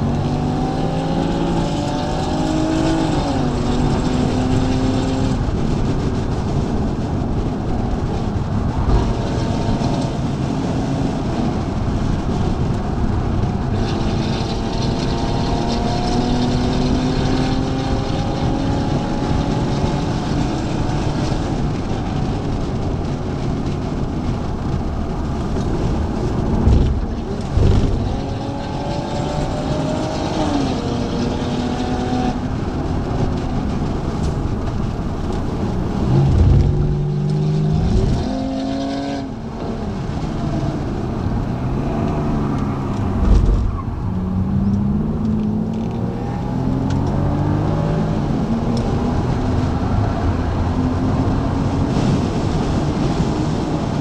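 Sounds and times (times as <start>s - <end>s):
car engine from inside cabin: 0.0s - 54.0s
low thuds: 25.1s - 28.7s, 34.3s - 38.6s.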